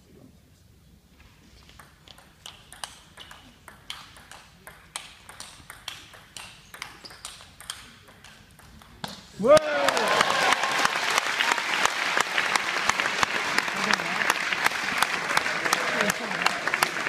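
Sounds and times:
table tennis ball clicking: 0:01.7 - 0:09.3.

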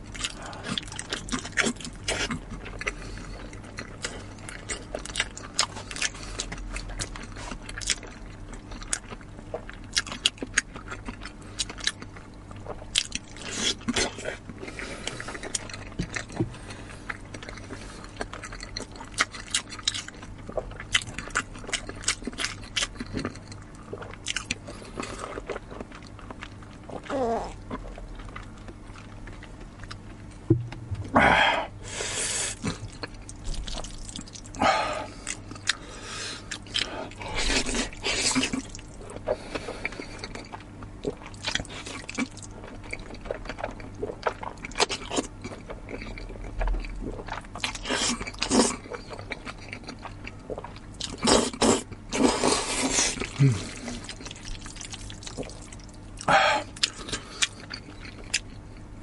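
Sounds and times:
crunchy chewing: 0:00.1 - 0:30.8, 0:32.5 - 0:59.0
slurping noodles: 0:51.2 - 0:54.2.

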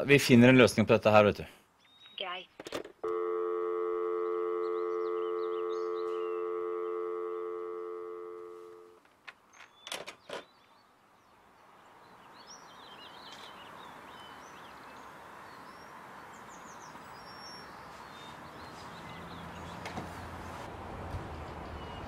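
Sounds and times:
outdoor background noise: 0:00.0 - 0:22.0
small birds chirping: 0:01.7 - 0:02.6, 0:04.6 - 0:07.0, 0:09.2 - 0:22.0.

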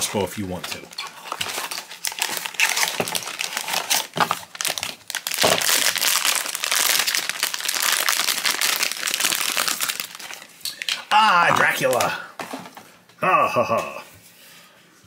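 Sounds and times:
foil bag tearing and crinkling: 0:00.8 - 0:10.9.

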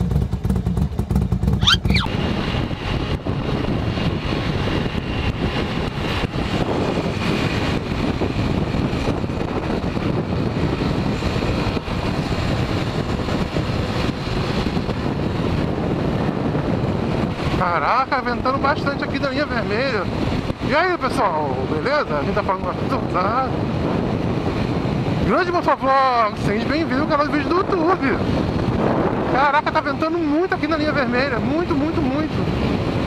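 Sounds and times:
motorcycle engine running: 0:00.0 - 0:18.4
wind buffeting microphone: 0:00.0 - 0:33.0.

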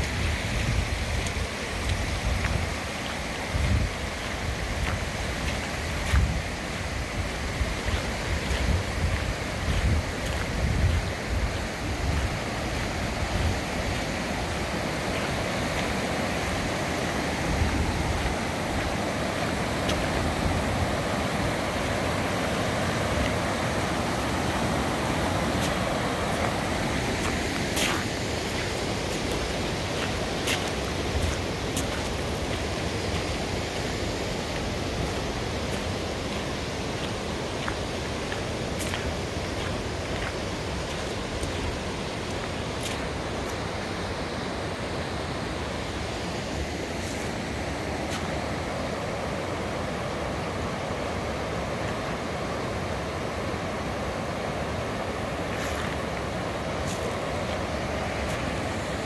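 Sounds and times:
wind buffeting microphone: 0:00.0 - 0:14.2
floodwater rushing: 0:00.0 - 0:59.0.

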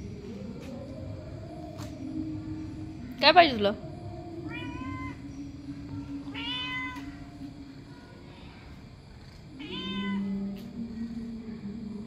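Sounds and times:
cat meowing: 0:06.3 - 0:07.1, 0:09.6 - 0:10.4.

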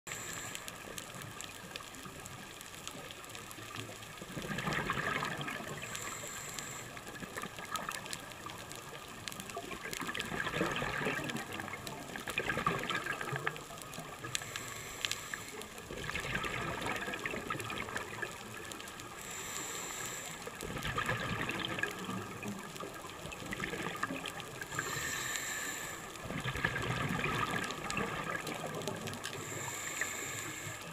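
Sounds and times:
bubbling exhaled air: 0:04.4 - 0:08.2, 0:09.6 - 0:30.7
diver breathing through regulator: 0:05.7 - 0:07.1, 0:14.4 - 0:15.8, 0:19.1 - 0:20.6, 0:24.7 - 0:26.3, 0:29.3 - 0:30.9.

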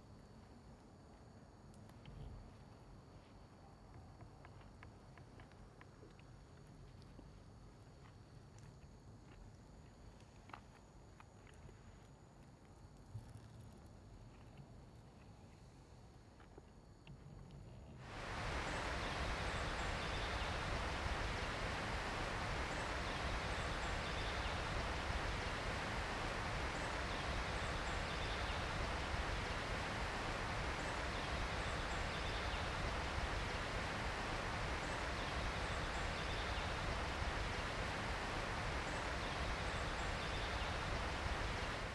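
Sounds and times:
faint high chirps: 0:18.0 - 0:41.9
rushing hiss: 0:18.0 - 0:41.9.

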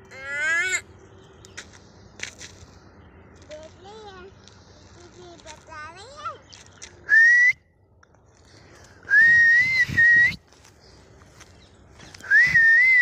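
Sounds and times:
person whistling: 0:07.1 - 0:07.6, 0:09.1 - 0:10.4, 0:12.2 - 0:13.0.

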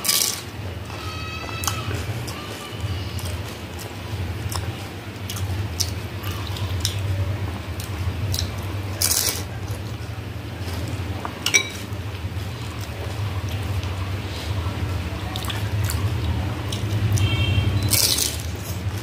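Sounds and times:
crunchy food being chewed: 0:01.5 - 0:10.0, 0:15.2 - 0:19.0.

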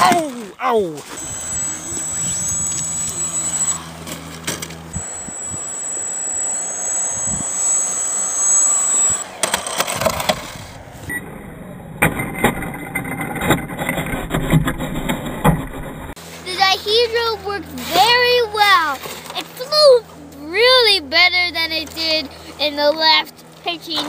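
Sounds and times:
electric motor high-pitched whine: 0:01.1 - 0:11.8.

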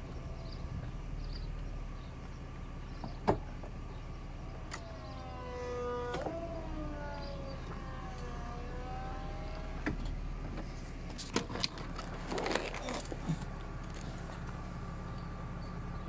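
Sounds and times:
soft-top pump whining: 0:04.4 - 0:10.8.

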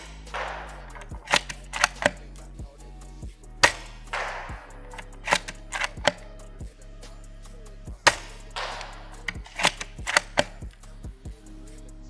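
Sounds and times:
airsoft rifle shot: 0:00.0 - 0:02.2, 0:03.6 - 0:06.2, 0:08.1 - 0:10.7
rifle bolt clicks: 0:00.0 - 0:02.3, 0:03.6 - 0:06.3, 0:08.1 - 0:10.8
background music: 0:00.0 - 0:12.0.

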